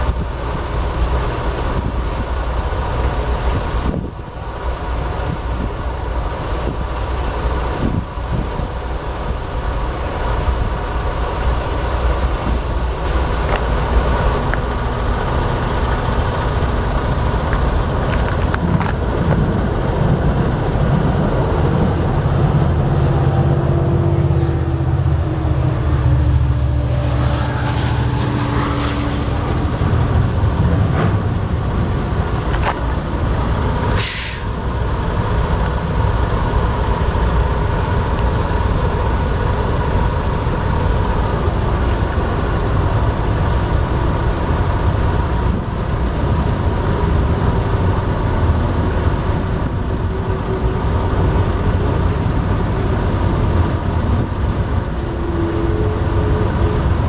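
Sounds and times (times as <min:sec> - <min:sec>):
passenger train passing: 0:00.0 - 0:57.0
steady low rumble: 0:00.0 - 0:57.0
short sharp hiss: 0:33.9 - 0:34.6.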